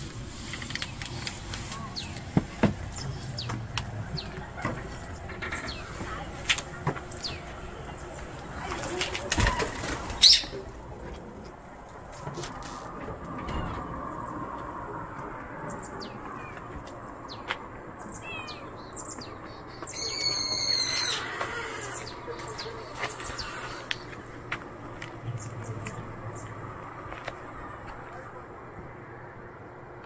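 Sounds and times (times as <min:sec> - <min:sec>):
birds chirping: 0:00.1 - 0:30.0
shrill drawn-out bird call: 0:19.9 - 0:22.2.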